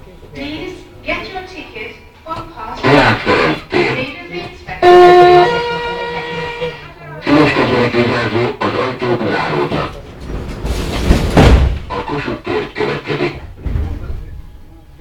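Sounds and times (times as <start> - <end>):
train doors sliding shut: 9.3 - 14.6.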